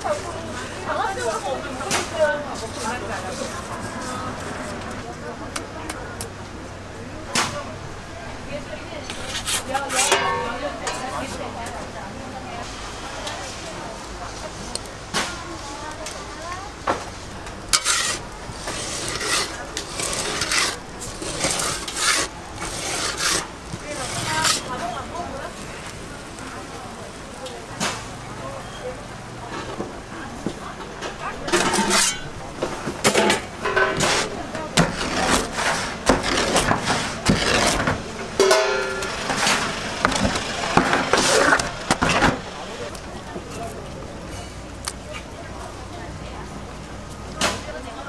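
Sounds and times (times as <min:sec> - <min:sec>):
metal peel scraping stone floor: 0:00.0 - 0:05.0, 0:09.0 - 0:11.8, 0:16.9 - 0:26.2, 0:31.0 - 0:42.9
pizza cutter crunching crust: 0:01.3 - 0:04.9, 0:09.1 - 0:11.4, 0:17.5 - 0:25.6, 0:31.5 - 0:32.3, 0:33.0 - 0:38.0, 0:38.8 - 0:42.4.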